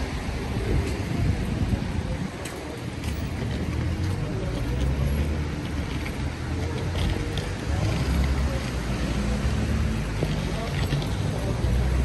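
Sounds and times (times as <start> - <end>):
wind buffeting microphone: 0.0 - 4.5
faint wet street ambience: 0.0 - 12.0.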